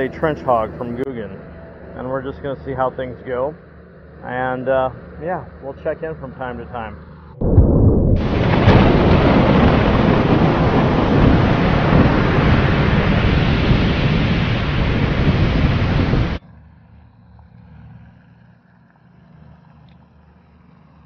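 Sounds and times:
faint outdoor background: 0:00.0 - 0:10.4
wind: 0:00.0 - 0:21.0
rush of stormy waves: 0:08.2 - 0:16.4.

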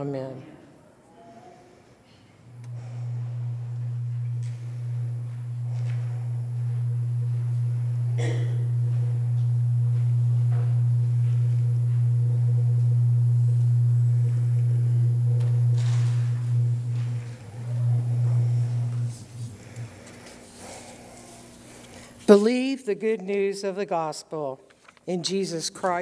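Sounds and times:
steady low hum: 0:01.6 - 0:22.4.

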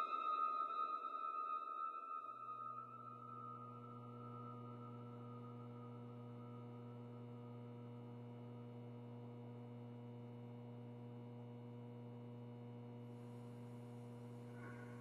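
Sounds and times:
faint low hum: 0:03.2 - 0:15.0.

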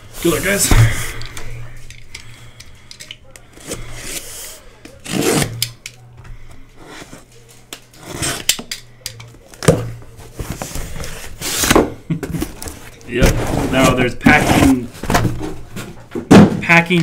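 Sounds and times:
cardboard and packing peanuts rubbing: 0:13.1 - 0:15.1.

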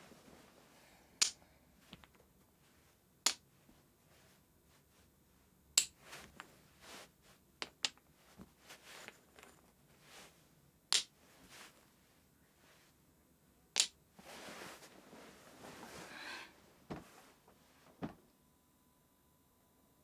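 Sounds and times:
soft rustling: 0:00.0 - 0:01.0, 0:01.8 - 0:13.0, 0:14.1 - 0:18.3
wooden blocks clacking: 0:07.6 - 0:08.0, 0:10.9 - 0:11.1, 0:13.7 - 0:14.0.

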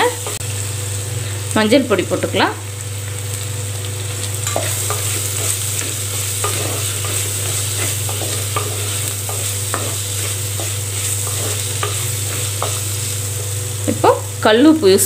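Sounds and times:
frying sizzle: 0:00.0 - 0:15.0
wooden spatula scraping pot: 0:04.5 - 0:12.8.

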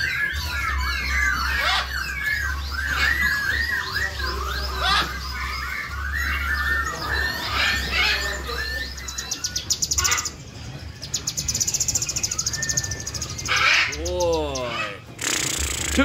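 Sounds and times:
fast high rattling bird trill: 0:00.0 - 0:16.0
songbirds chirping and whistling: 0:00.0 - 0:16.0.

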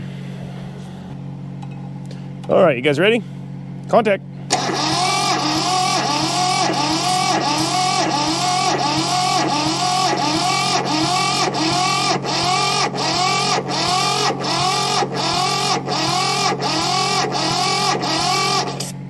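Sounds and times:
starter cranking diesel engine: 0:04.5 - 0:19.0.

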